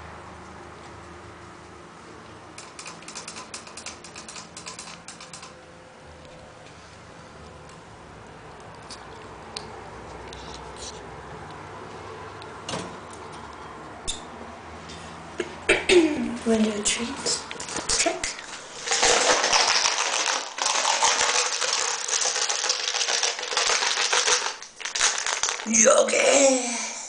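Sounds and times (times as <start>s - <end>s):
rapid light clicks and ticks: 2.6s - 5.6s.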